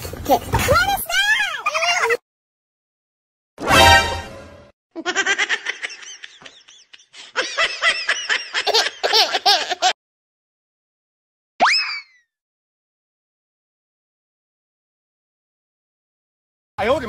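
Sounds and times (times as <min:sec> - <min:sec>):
high-pitched laughter: 0:05.0 - 0:10.0.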